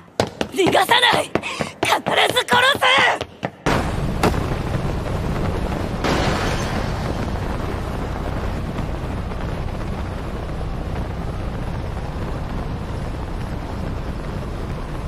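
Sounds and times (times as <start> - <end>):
wind rumbling: 3.6 - 15.0
engine noise: 3.7 - 15.0.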